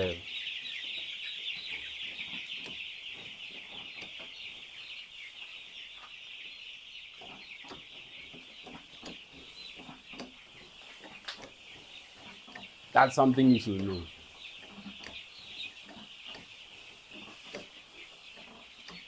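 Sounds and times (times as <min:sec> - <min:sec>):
chicks peeping: 0:00.0 - 0:19.0
faint clicks: 0:07.6 - 0:12.7, 0:13.8 - 0:19.0.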